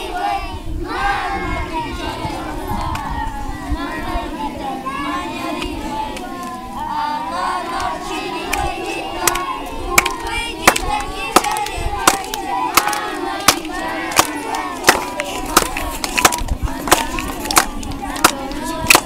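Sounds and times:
children calling out together: 0.0s - 19.0s
rhythmic clapping in unison: 7.7s - 19.0s.

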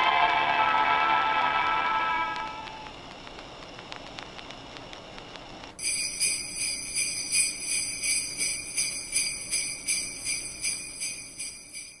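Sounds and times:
sleigh bells jingling: 5.8s - 12.0s.

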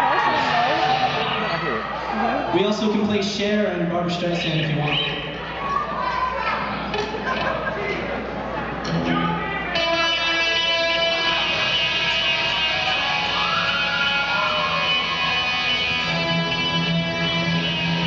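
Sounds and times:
electric guitar chords: 8.8s - 18.0s.

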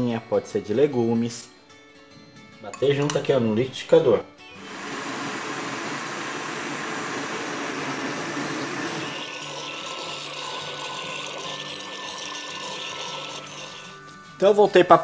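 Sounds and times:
blender motor running: 4.6s - 14.0s.

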